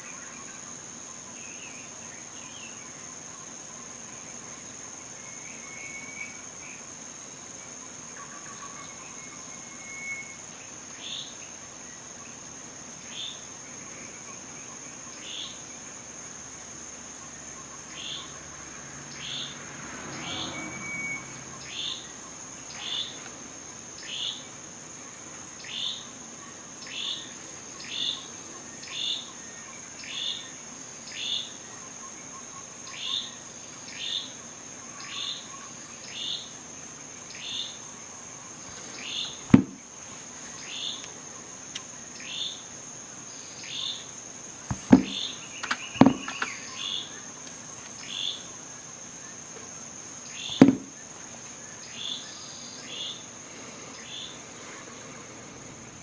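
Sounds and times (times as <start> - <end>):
bird chirping: 44.7 - 48.5.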